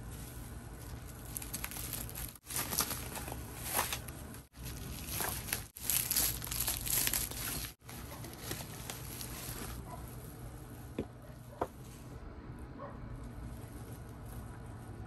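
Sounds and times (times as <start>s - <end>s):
bubble wrap crinkling: 0.0s - 10.9s.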